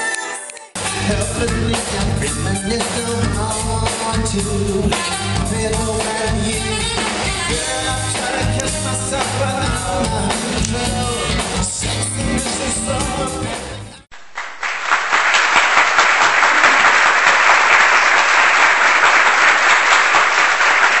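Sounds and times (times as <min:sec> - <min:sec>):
pop song with singing: 0:00.0 - 0:14.1
studio audience applause: 0:14.2 - 0:21.0.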